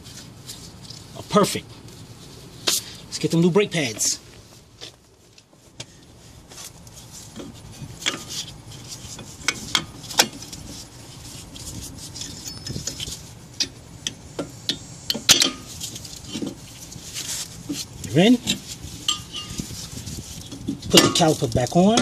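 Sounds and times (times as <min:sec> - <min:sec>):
metallic clicks of brake pads: 0:11.6 - 0:17.0.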